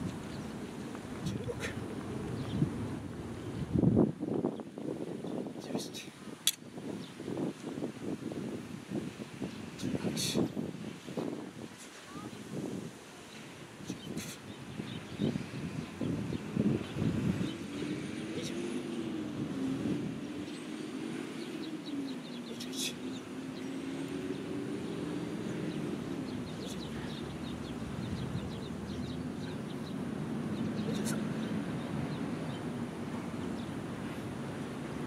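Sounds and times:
distant engine droning: 16.6s - 35.0s.

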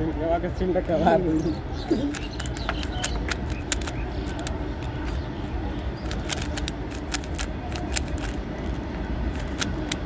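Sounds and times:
puzzle cube layers clicking: 2.1s - 5.1s, 6.0s - 8.4s, 9.3s - 10.0s.

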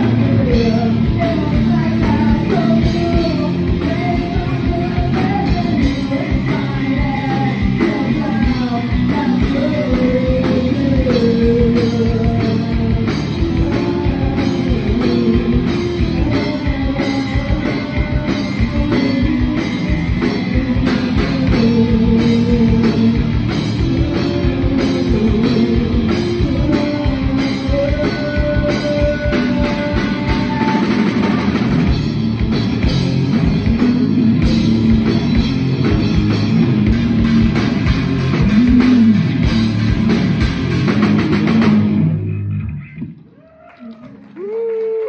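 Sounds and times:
woman singing: 0.0s - 31.4s
rock band playing live: 0.0s - 43.3s.

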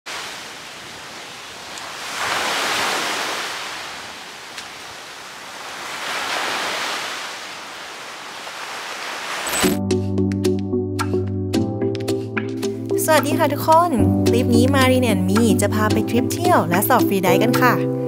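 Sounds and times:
small waves washing onto sand: 0.1s - 9.6s.

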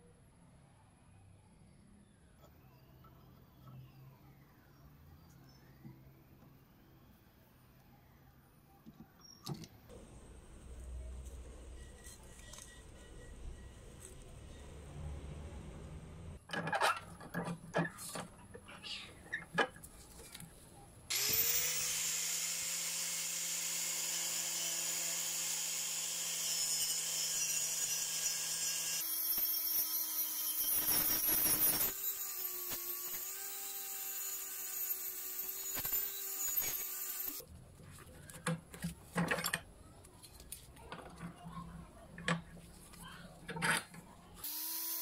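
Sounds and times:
angle grinder sanding metal: 21.1s - 37.4s.

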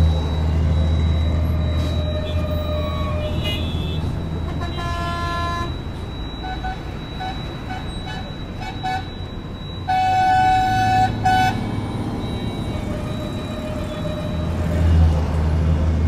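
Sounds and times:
traffic engines rumbling: 0.0s - 16.0s
car horns: 1.8s - 11.8s.

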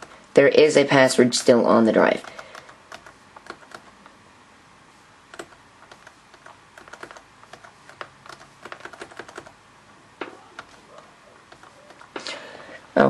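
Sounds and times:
laptop keys clicking: 2.2s - 4.2s, 5.3s - 9.6s, 10.2s - 12.4s.

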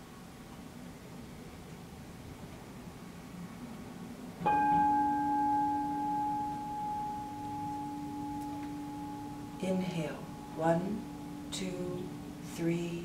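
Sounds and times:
singing bowl struck with mallet: 4.4s - 12.5s
singing bowl ringing: 4.4s - 13.0s.

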